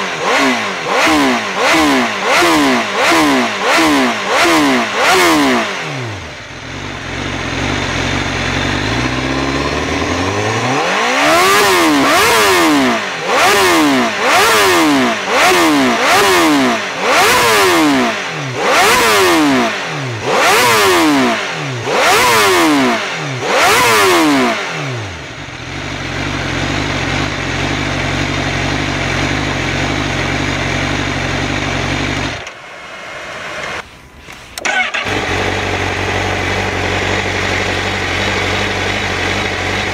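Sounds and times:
motorcycle engine revving: 0:00.0 - 0:32.6, 0:33.2 - 0:39.9
engine starting: 0:33.6 - 0:35.5.

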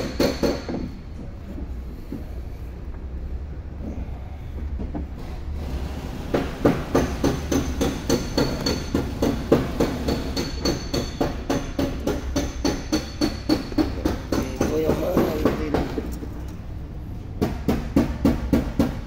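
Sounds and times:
hammer striking metal: 0:06.3 - 0:16.0.

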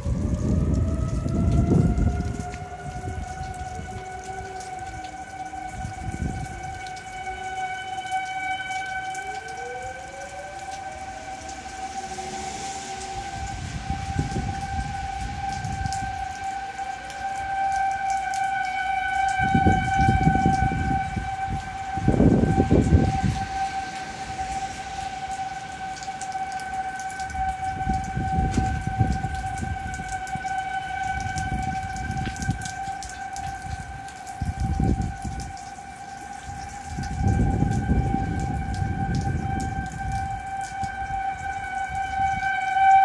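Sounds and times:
wind gusts on microphone: 0:00.0 - 0:07.3, 0:09.8 - 0:17.7, 0:19.3 - 0:35.6, 0:36.4 - 0:42.9
warning siren steady pitch: 0:00.0 - 0:43.0.

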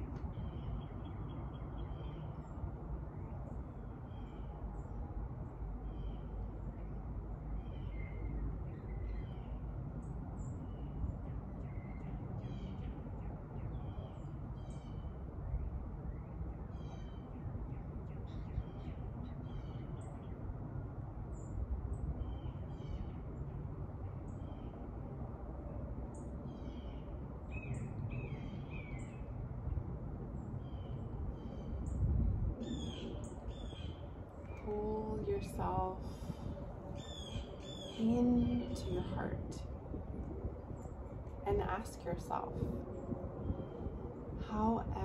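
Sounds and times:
low background rumble: 0:00.0 - 0:45.0
birds chirping and trilling: 0:26.5 - 0:29.4, 0:30.6 - 0:39.5.

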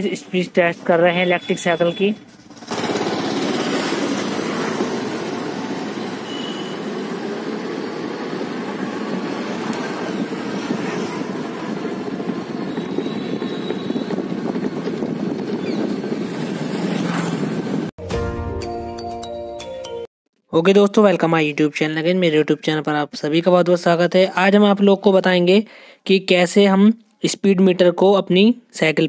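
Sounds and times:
bicycle riding rushing noise: 0:02.3 - 0:17.9.

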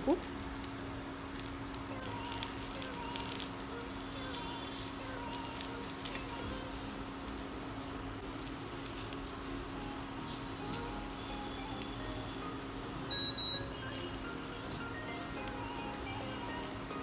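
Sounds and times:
food sizzling in a pan: 0:00.1 - 0:17.0.

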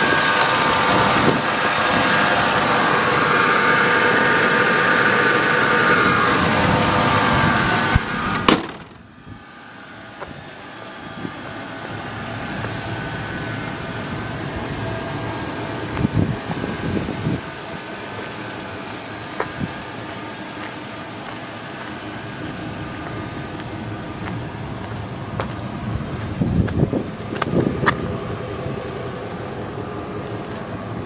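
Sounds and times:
pickup engine idling: 0:00.0 - 0:31.0
sharp knocks: 0:08.5 - 0:09.0.

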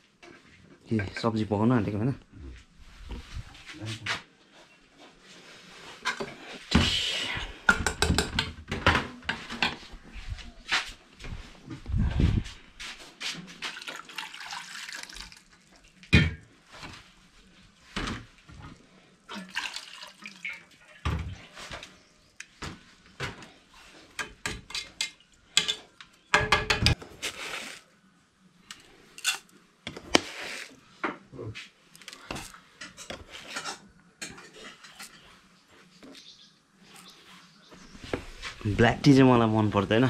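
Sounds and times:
water sounds: 0:13.6 - 0:16.1, 0:19.3 - 0:21.0
kettles and lids clanking: 0:24.2 - 0:27.0.

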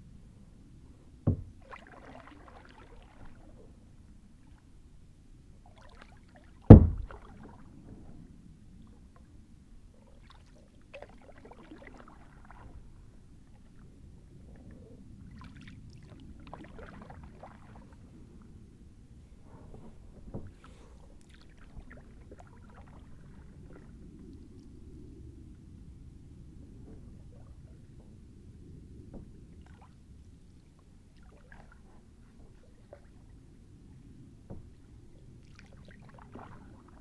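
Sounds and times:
sharp knocks: 0:01.3 - 0:01.5, 0:06.7 - 0:07.1
water splashing off paddle: 0:06.0 - 0:07.6.

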